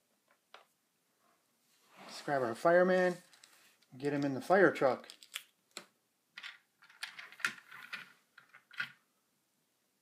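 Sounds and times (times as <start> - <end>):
plastic toy parts clicking: 5.0 - 9.0.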